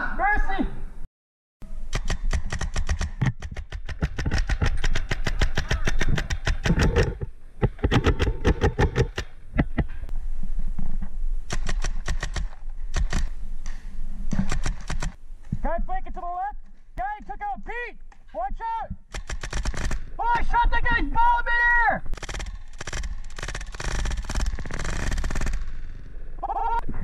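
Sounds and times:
paintball markers firing: 0:01.9 - 0:09.9, 0:11.5 - 0:15.2, 0:19.1 - 0:20.1, 0:22.2 - 0:25.9.

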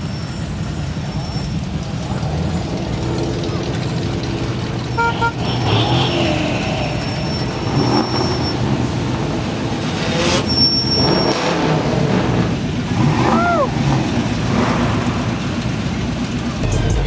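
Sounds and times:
pickup engines rumbling: 0:00.0 - 0:17.0
short horn toot: 0:04.9 - 0:08.4.

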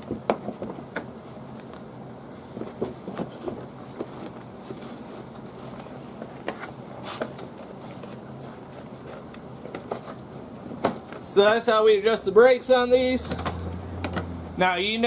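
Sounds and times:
rubber floor mat rustling: 0:00.0 - 0:10.9.

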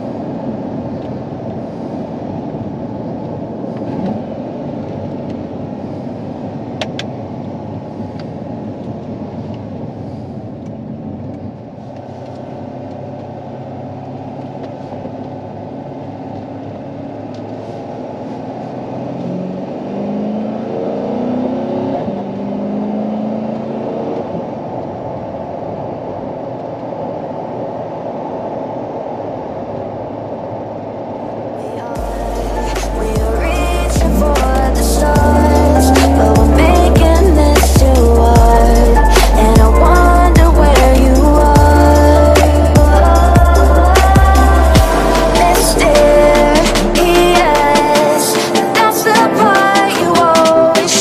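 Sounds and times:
car engine accelerating: 0:00.0 - 0:08.1, 0:11.1 - 0:25.3, 0:31.6 - 0:51.0
road noise: 0:00.0 - 0:51.0.

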